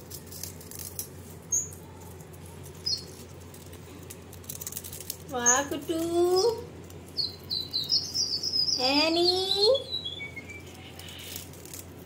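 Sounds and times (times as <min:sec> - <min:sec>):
short high bird chirps: 0:07.2 - 0:11.3.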